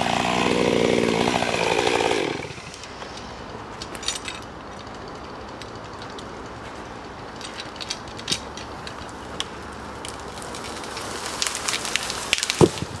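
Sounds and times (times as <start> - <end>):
wood cracking and snapping: 3.8 - 13.0
tree trunk thudding on ground: 11.4 - 13.0.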